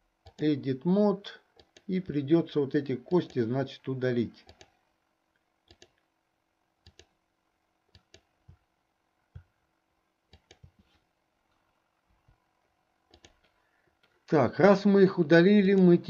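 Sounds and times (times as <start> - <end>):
computer mouse clicks: 1.6 - 1.9, 4.4 - 4.8, 5.6 - 6.0, 6.8 - 7.2, 7.9 - 8.6, 10.3 - 11.6, 13.1 - 14.2.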